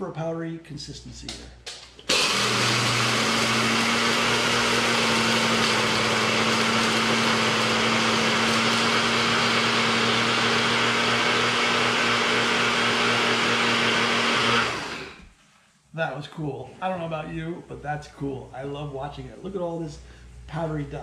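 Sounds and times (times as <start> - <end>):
blender grinding: 2.0 - 15.3.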